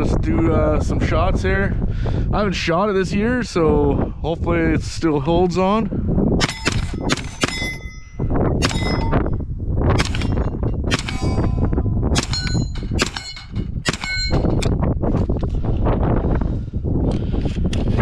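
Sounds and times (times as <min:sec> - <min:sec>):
carbine gunshots: 0:06.4 - 0:07.9, 0:08.6 - 0:09.1, 0:10.0 - 0:11.4, 0:12.2 - 0:14.3
steel targets ringing: 0:06.4 - 0:09.3, 0:10.2 - 0:14.6.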